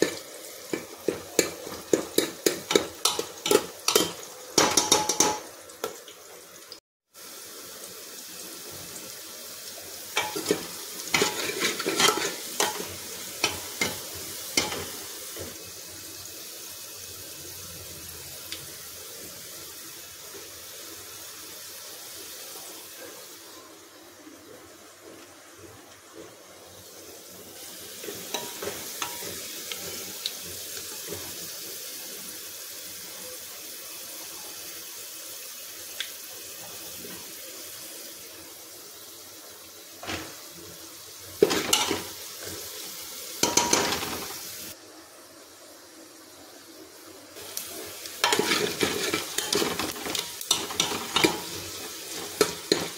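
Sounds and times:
onions sizzling in hot oil: 0.0 - 52.9
metal ladle scraping a pot: 10.2 - 14.0, 48.2 - 52.9.

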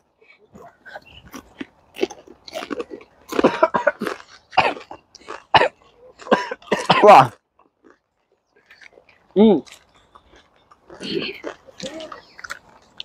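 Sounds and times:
chewing and crunching chips: 0.1 - 13.0
men coughing: 3.3 - 7.3, 11.0 - 11.5.

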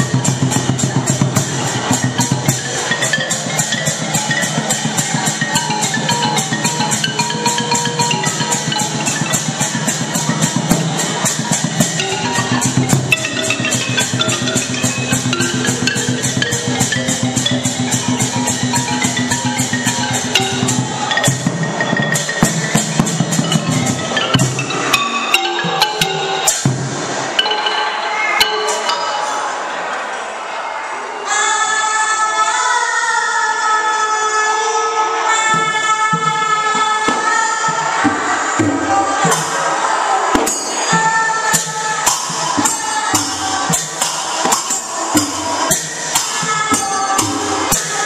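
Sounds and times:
drums: 0.0 - 29.0, 35.2 - 48.0
xylophone melody: 0.0 - 29.8, 40.5 - 48.0.

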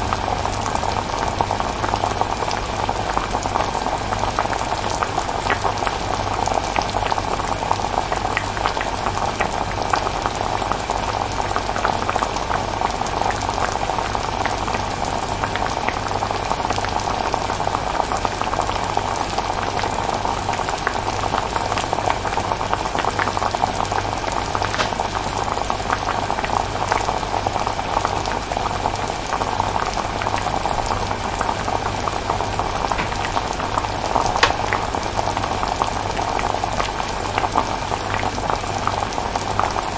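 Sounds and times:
chilli bubbling: 15.5 - 39.9.

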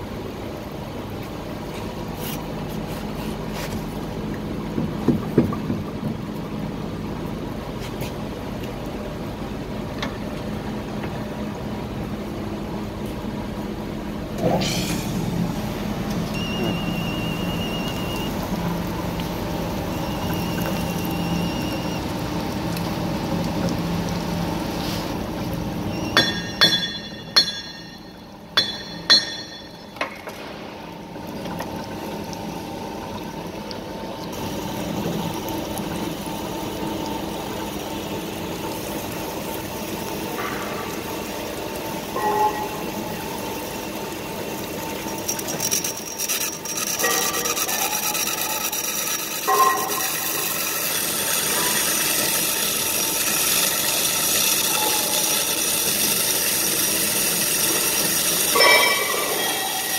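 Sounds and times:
coolant pouring: 0.0 - 59.9
band saw cutting steel pipe: 45.3 - 52.5, 58.5 - 59.9
ringing metal clinks: 58.6 - 59.8.

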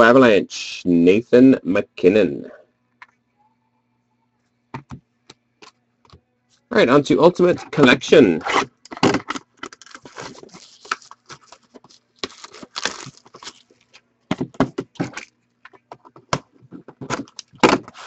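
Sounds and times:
faint steady hum: 0.0 - 18.0
packaging crinkling and tearing: 8.5 - 14.0.

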